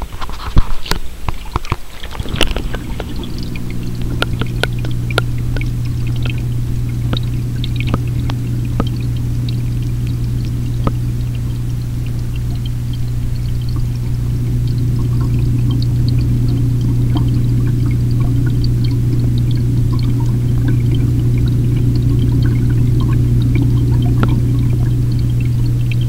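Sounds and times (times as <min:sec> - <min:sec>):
aquarium pump humming: 0:00.0 - 0:26.0
water washing: 0:00.0 - 0:26.0
sharp clicks and knocks: 0:00.2 - 0:06.4, 0:07.1 - 0:09.0.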